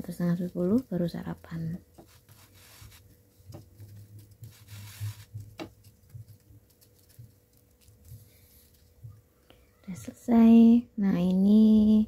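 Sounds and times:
spatula scraping bread in pan: 1.9s - 3.8s, 4.4s - 6.2s.

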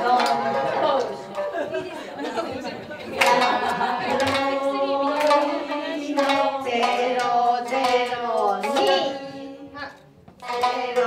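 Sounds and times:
person singing long sliding notes: 0.0s - 1.3s, 3.2s - 9.8s, 10.4s - 11.0s
plucked shamisen notes: 0.0s - 11.0s.

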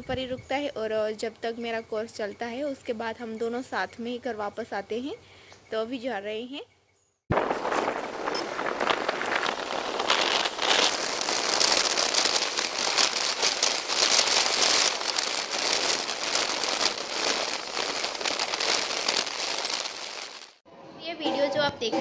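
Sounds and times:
wind rushing over microphone: 7.3s - 19.4s.

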